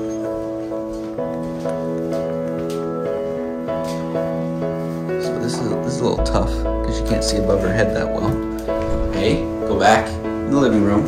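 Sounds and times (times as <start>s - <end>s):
soft sustained chords: 4.2s - 10.8s.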